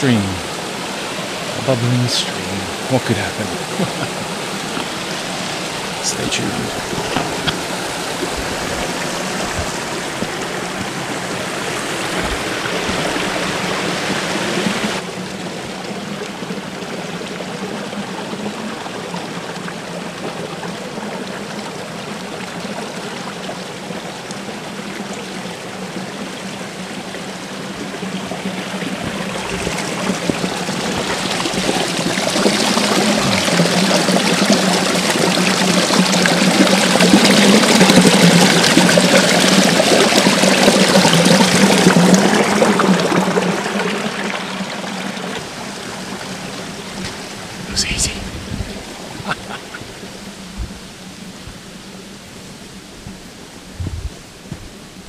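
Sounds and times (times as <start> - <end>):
creek bubbling over rocks: 0.0 - 47.8
water pouring: 28.7 - 46.4.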